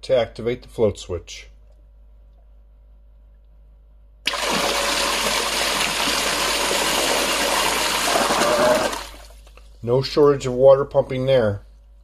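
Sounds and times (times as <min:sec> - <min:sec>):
bilge pump switching on: 0:04.3 - 0:09.3
water gushing into a sink: 0:04.3 - 0:09.4.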